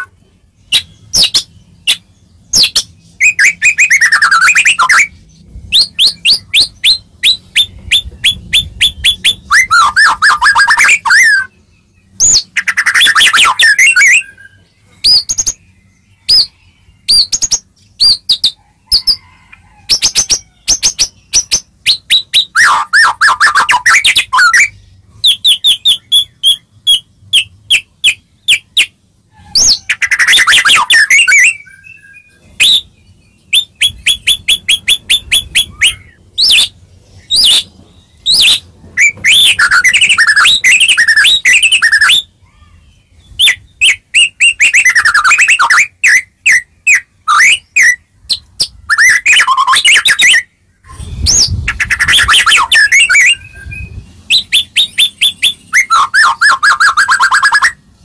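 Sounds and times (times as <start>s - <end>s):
songbird singing: 0.0s - 58.0s.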